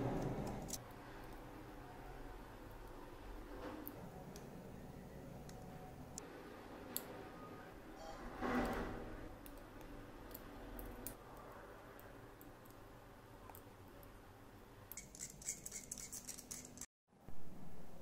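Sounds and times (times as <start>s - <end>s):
plastic parts clicking and scratching: 15.0s - 16.9s.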